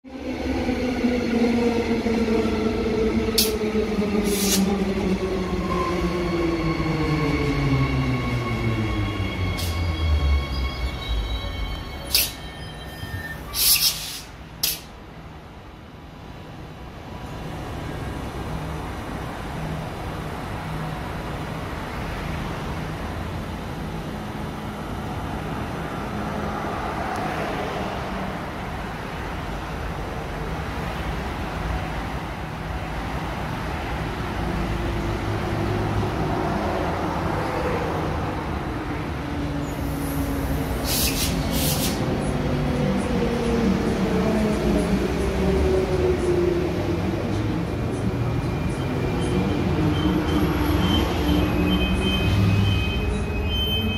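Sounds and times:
train rumble: 0.1 - 53.9
short hisses: 4.2 - 4.7, 13.5 - 14.9, 40.8 - 42.0.

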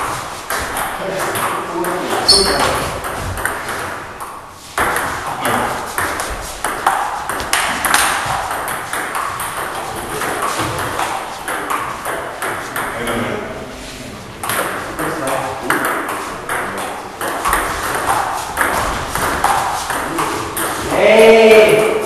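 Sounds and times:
voices talking: 1.0 - 2.9.

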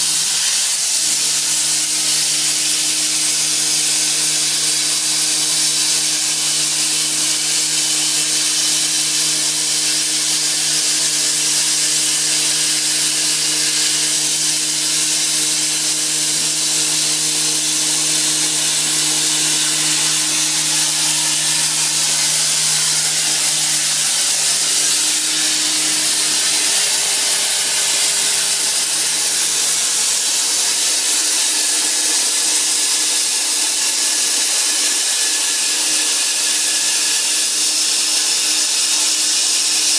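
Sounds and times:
plasma torch cutting hiss: 0.0 - 39.9.

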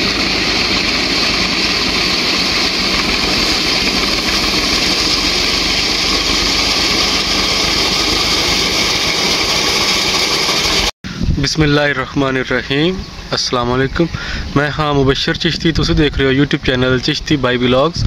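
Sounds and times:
tractor engine running: 0.0 - 10.9.

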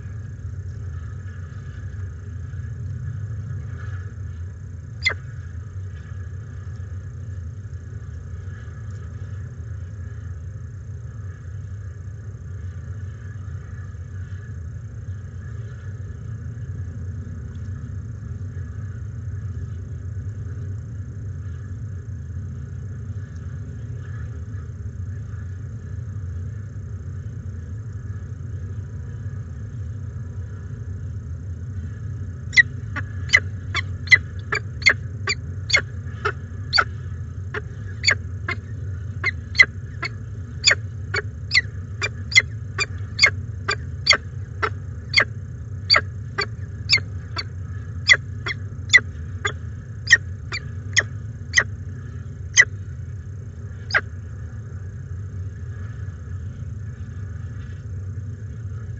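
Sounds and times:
steady low hum: 0.0 - 58.9
falcon high chirps: 34.1 - 35.8, 50.1 - 50.6.

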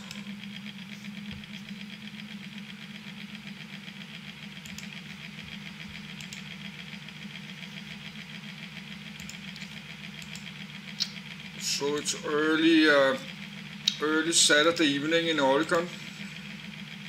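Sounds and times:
small motor humming: 0.0 - 17.0
faint clicks: 9.2 - 11.2.

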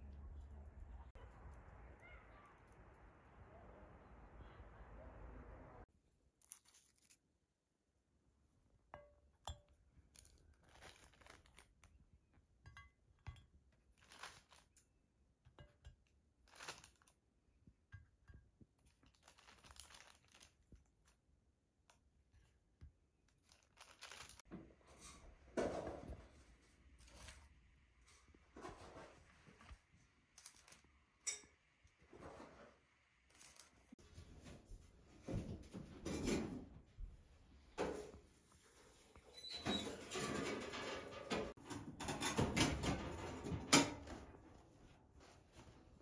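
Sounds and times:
cookies crackling and rustling: 6.3 - 7.6, 9.8 - 34.3.

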